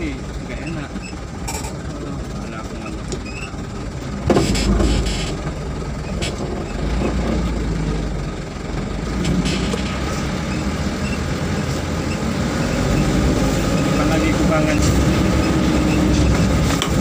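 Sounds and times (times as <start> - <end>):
truck engine and road rumble: 0.0 - 17.0
truck knocks and rattles: 0.3 - 11.2, 14.8 - 17.0.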